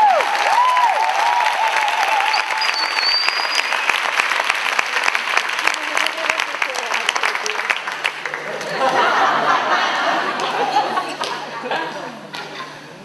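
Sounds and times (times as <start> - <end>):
voices cheering: 0.0 - 3.7
audience applauding: 0.0 - 9.4
high whistle: 2.2 - 4.0.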